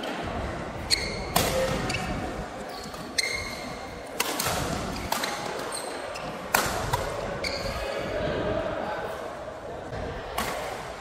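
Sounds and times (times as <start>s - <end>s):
shoes squeaking on court: 0.8s - 8.0s
rackets striking shuttlecock: 4.1s - 5.7s.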